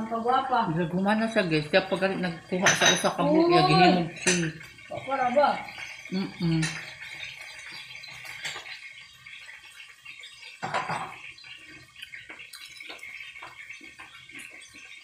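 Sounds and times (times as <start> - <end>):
crackle: 4.2 - 15.0
person humming: 6.1 - 6.8
wet chewing: 12.0 - 14.7.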